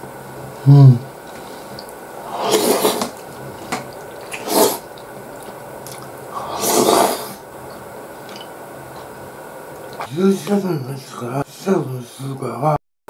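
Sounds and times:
person slurping from spoon: 2.2 - 3.2, 4.1 - 4.9, 5.9 - 7.4.

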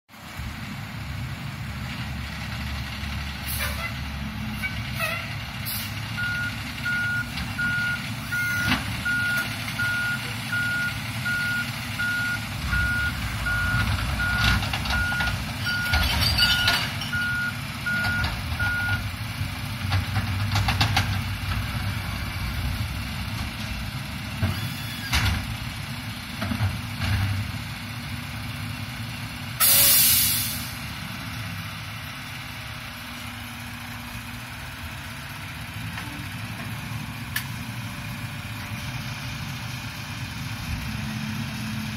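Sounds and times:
garbage truck engine running: 0.2 - 41.9
air brakes hissing: 3.4 - 6.0, 24.5 - 25.2, 29.6 - 30.8
back-up warning beeper: 6.2 - 19.0.

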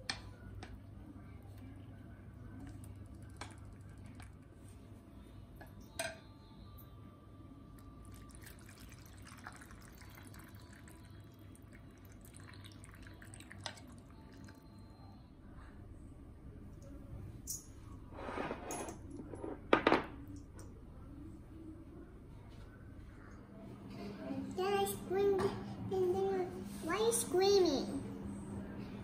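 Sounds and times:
broth pouring into a bowl: 8.0 - 14.6.

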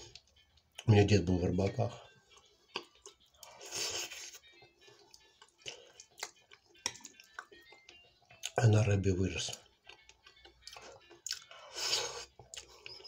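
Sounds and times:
wet chewing sounds: 2.2 - 8.6, 9.5 - 13.0.

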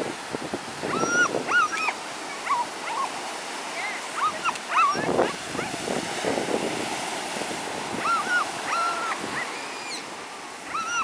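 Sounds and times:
waves breaking on a beach: 0.0 - 11.0.

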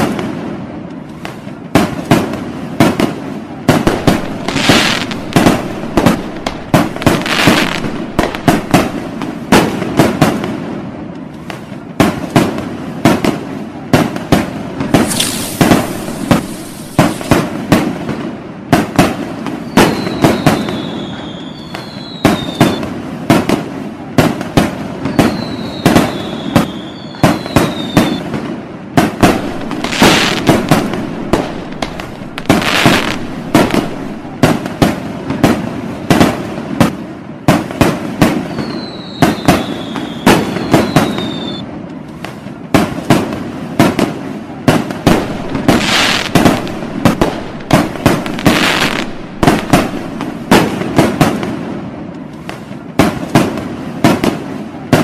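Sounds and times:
firework hissing: 3.7 - 9.7, 14.8 - 17.7, 29.1 - 34.6, 45.0 - 50.8
firework shell launches and bursts: 3.7 - 9.7, 14.8 - 17.6, 29.0 - 34.6, 45.0 - 50.8
descending firework whistles: 3.9 - 9.2, 14.9 - 17.5, 19.5 - 23.0, 25.0 - 28.4, 29.2 - 34.4, 38.3 - 41.7, 45.1 - 50.7.

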